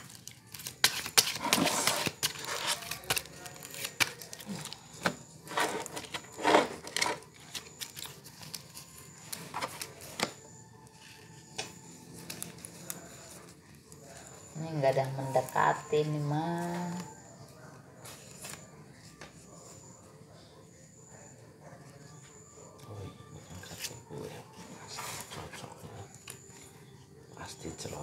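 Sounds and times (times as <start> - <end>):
playing cards shuffling: 0.0 - 10.4, 11.0 - 13.6.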